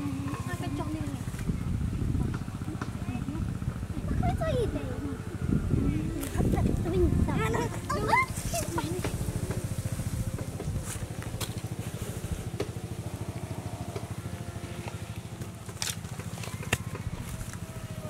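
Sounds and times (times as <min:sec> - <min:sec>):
small engine chugging: 0:00.0 - 0:18.0.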